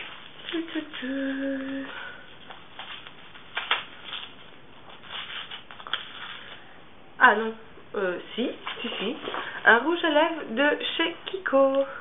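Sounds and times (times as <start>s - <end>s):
wrapping paper rustling: 0.0s - 6.8s.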